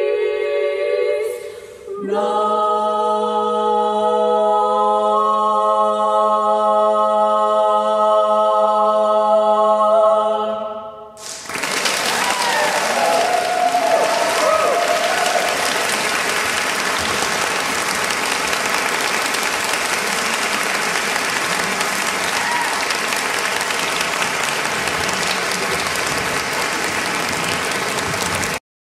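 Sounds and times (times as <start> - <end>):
women singing a cappella chord: 0.0 - 11.1
audience applause: 11.2 - 28.6.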